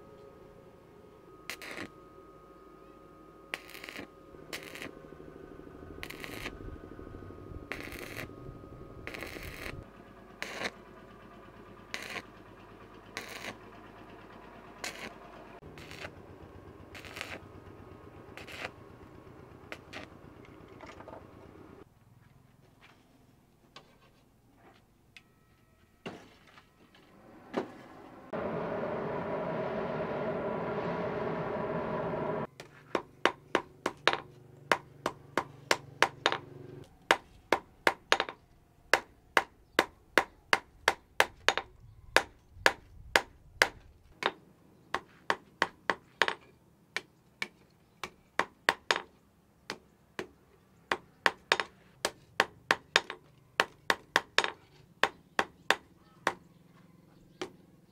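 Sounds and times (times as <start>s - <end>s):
steady hum: 0.0s - 12.3s, 27.2s - 32.5s
hammer ringing on hot steel: 1.3s - 4.9s.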